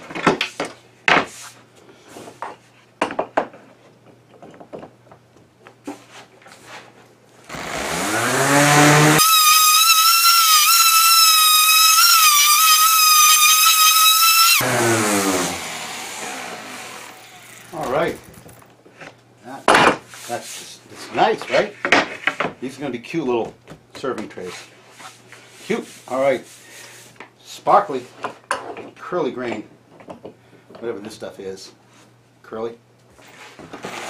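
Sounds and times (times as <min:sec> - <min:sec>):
orbital sander whining: 0:07.5 - 0:17.8.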